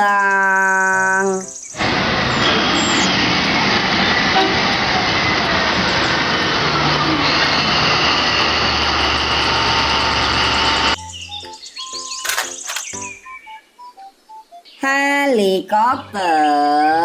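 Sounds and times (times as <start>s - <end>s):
truck diesel engine running: 1.8s - 11.0s.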